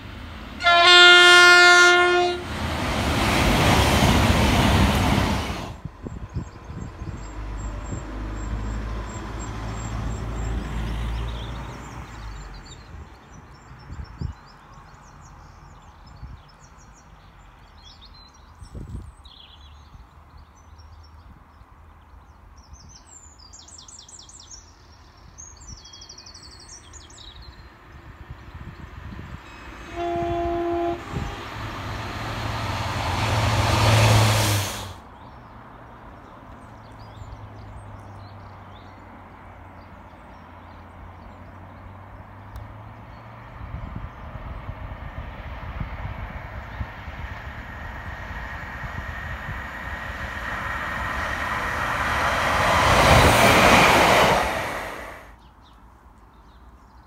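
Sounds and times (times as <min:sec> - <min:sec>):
distant train rumble: 0:00.0 - 0:13.4, 0:28.0 - 0:35.0, 0:42.8 - 0:55.4
train passing rumble: 0:00.0 - 0:15.7, 0:27.6 - 0:55.4
train horn blast: 0:00.6 - 0:02.6, 0:29.7 - 0:32.0.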